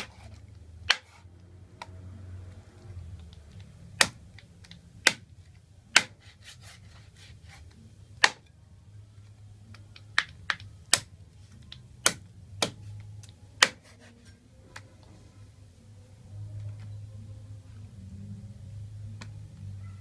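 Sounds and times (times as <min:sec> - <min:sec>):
cleaver chopping on wooden board: 0:05.1 - 0:05.3, 0:05.9 - 0:06.2, 0:13.6 - 0:13.9.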